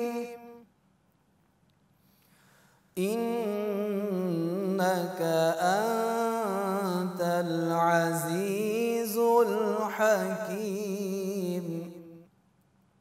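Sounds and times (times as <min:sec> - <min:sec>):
man reciting melodically: 0:00.0 - 0:00.7, 0:03.0 - 0:12.3.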